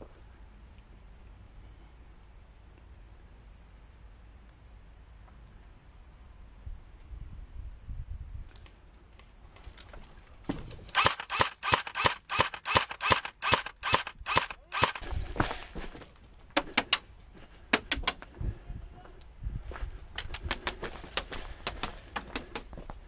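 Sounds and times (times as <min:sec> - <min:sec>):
airsoft rifle shots: 0:10.9 - 0:15.1.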